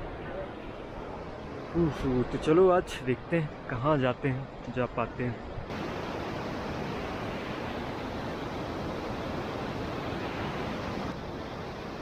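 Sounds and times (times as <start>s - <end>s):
steady rushing noise: 5.3s - 12.0s.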